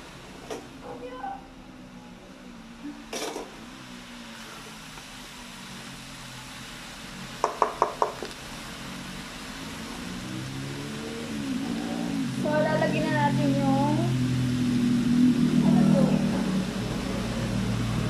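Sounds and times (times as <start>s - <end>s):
spatula tapping on pan: 7.4s - 8.3s
low hum: 8.3s - 18.0s.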